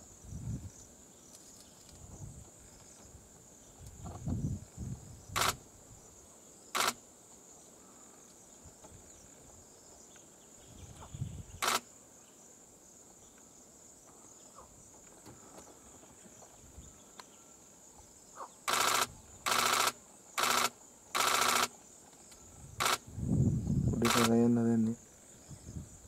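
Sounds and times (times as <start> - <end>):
insect chorus: 0.0 - 26.0
sharp clicks: 5.4 - 5.6, 6.8 - 7.0, 11.6 - 11.8, 18.7 - 21.7, 22.3 - 23.0, 24.0 - 25.0.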